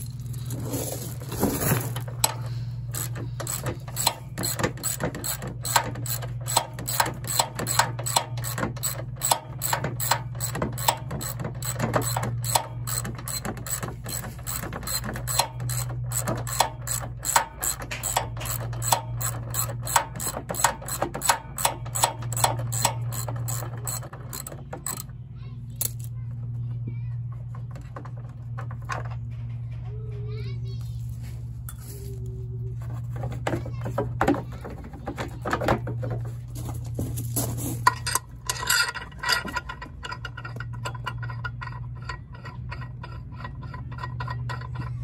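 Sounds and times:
socket ratchet clicking: 2.2 - 25.1.

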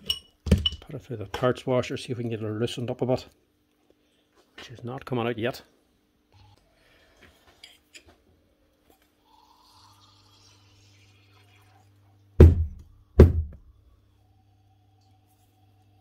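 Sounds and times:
heavy knocks of metal on workbench: 12.4 - 13.6.

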